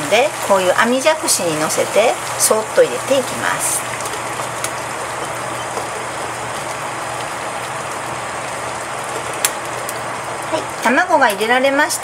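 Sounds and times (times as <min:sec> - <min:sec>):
water boiling in a saucepan: 0:00.0 - 0:12.0.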